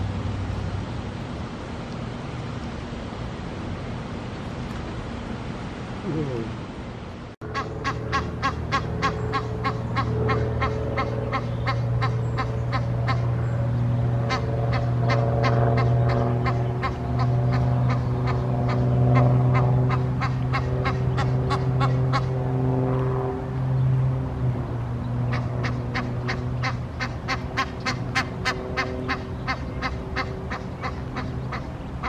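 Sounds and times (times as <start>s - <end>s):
low hum: 0.0s - 32.0s
goose honking: 7.5s - 13.3s, 14.3s - 22.3s, 25.3s - 31.7s.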